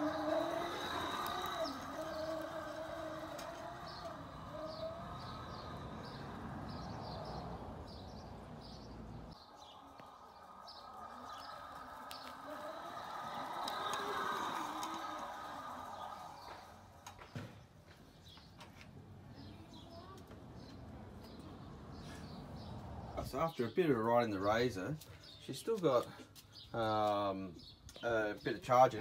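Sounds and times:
electric scooter motor whining: 0.0s - 17.4s
birds chirping: 0.0s - 29.0s.

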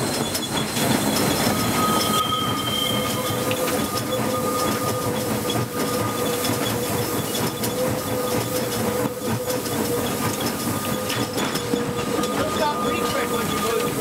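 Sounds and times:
steam locomotive running rumble: 0.0s - 14.0s
wheels clicking over rail joints: 0.0s - 14.0s
high ringing tone: 1.5s - 6.5s, 10.9s - 14.0s.

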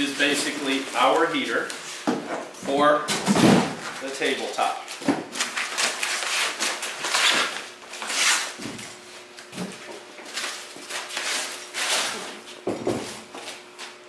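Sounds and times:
plastic wrap crinkling: 0.0s - 1.8s.

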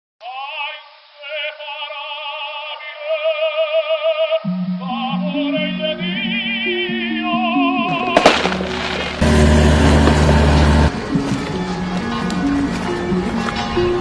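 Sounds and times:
operatic soprano singing: 0.2s - 8.2s
lower accompaniment: 7.9s - 14.0s.

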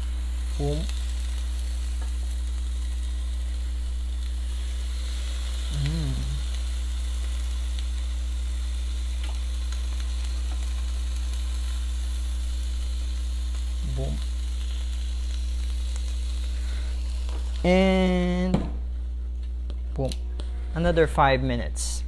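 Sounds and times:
fish sizzling on a grill: 0.0s - 18.4s
grill low hum: 0.0s - 22.0s
person humming: 5.6s - 6.6s.

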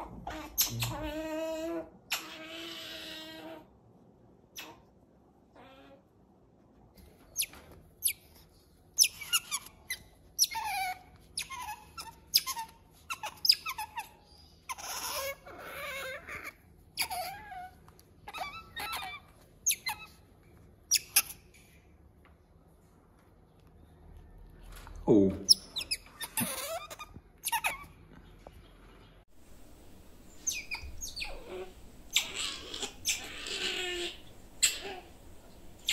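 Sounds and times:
otter squeaking and chirping: 0.0s - 3.5s, 7.2s - 21.6s, 25.4s - 28.0s, 29.6s - 35.9s.

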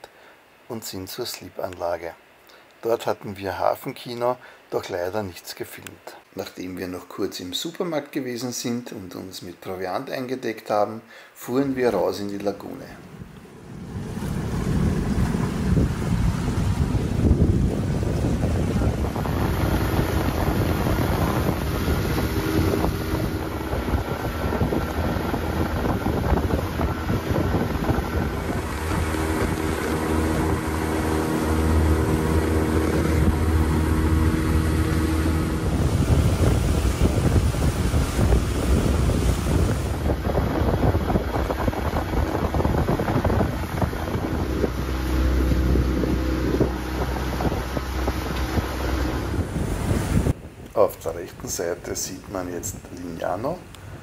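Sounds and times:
water rushing past hull: 11.8s - 50.6s
wind buffeting microphone: 13.1s - 50.7s
outboard motor running: 13.2s - 50.3s.

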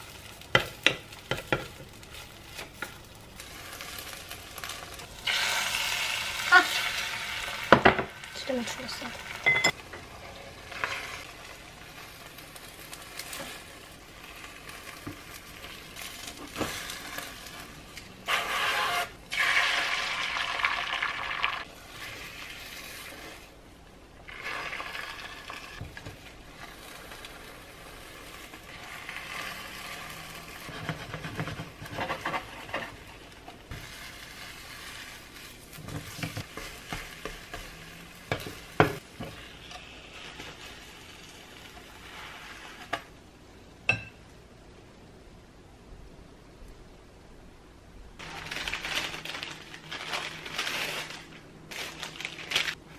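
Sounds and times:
egg sizzling in a frying pan: 0.0s - 43.2s
spatula scraping: 9.5s - 19.6s, 21.7s - 23.6s, 24.3s - 43.1s.

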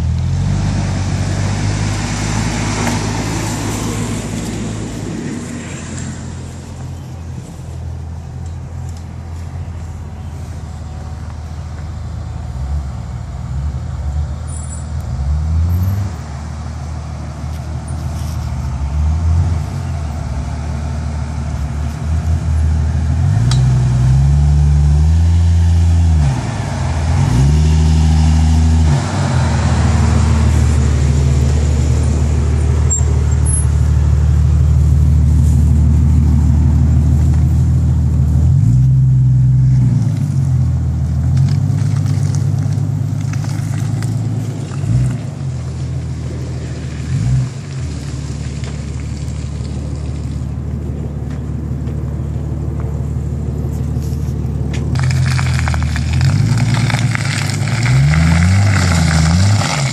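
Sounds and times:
car engine revving: 15.0s - 59.9s.

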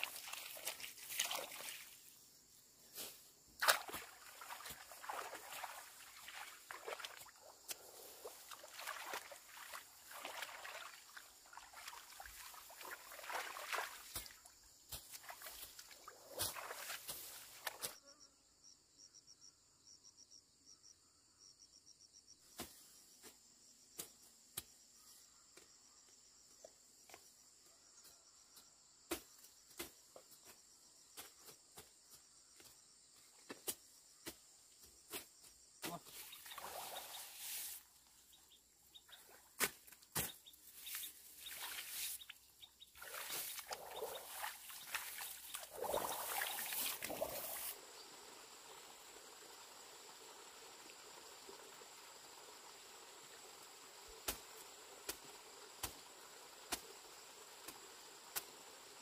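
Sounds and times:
insects droning: 0.0s - 59.0s
rice plants swishing and rustling: 11.7s - 17.9s, 36.1s - 38.0s, 39.6s - 42.4s, 43.0s - 47.8s.

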